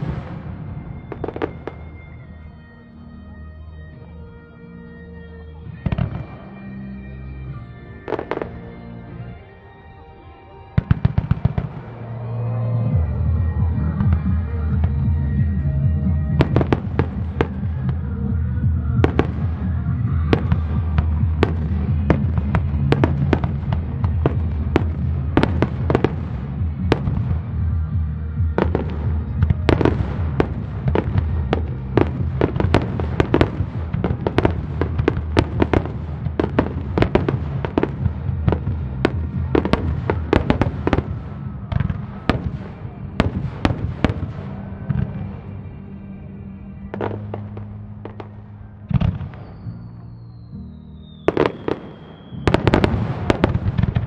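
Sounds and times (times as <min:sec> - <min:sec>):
fireworks bangs and crackles: 0:00.0 - 0:03.0, 0:05.6 - 0:09.8, 0:10.5 - 0:54.0
high whistle sliding down: 0:49.4 - 0:52.6.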